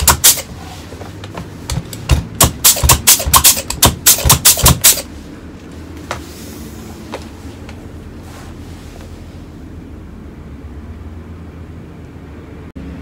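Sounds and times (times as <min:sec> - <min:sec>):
compressed-air gun blasts: 0:00.0 - 0:00.5, 0:02.4 - 0:05.1.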